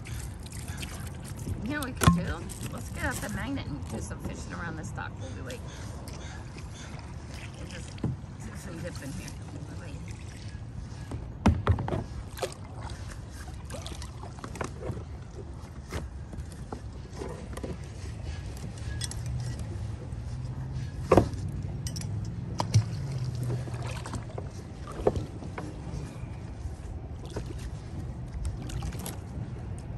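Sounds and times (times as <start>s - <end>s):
knocks against kayak hull: 11.1s - 12.1s
low wash of water: 22.5s - 29.7s.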